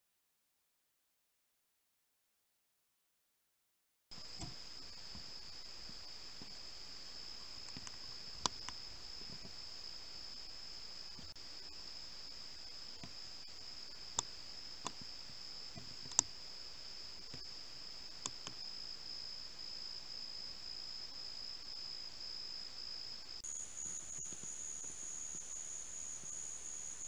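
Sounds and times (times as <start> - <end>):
crickets trilling: 4.2 - 27.0
sharp clicks or snaps: 16.0 - 16.3, 18.2 - 18.6.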